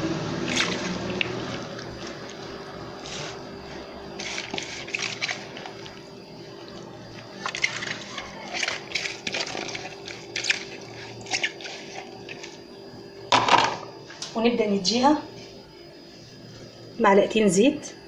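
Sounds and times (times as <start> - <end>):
wet squelching and rustling: 0.4 - 12.7.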